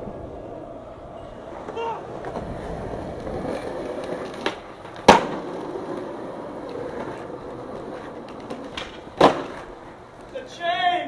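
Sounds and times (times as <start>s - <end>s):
skateboard wheels rolling on asphalt: 0.0s - 11.0s
skateboard wooden clack: 1.6s - 9.9s.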